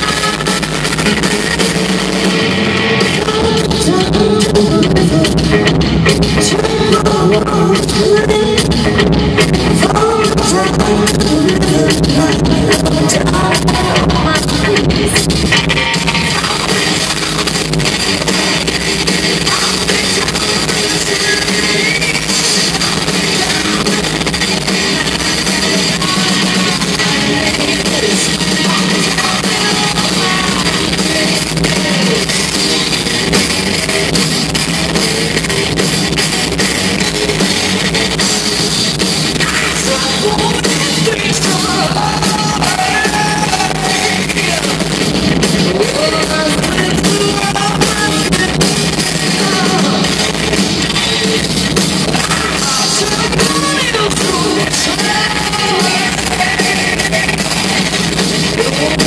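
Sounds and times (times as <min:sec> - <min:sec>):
live rock band playing: 0:00.0 - 0:59.0
woman singing: 0:03.1 - 0:05.4, 0:06.4 - 0:08.8, 0:09.8 - 0:15.3, 0:19.4 - 0:24.0, 0:25.8 - 0:32.3, 0:39.4 - 0:44.6, 0:45.8 - 0:50.1, 0:52.2 - 0:57.7.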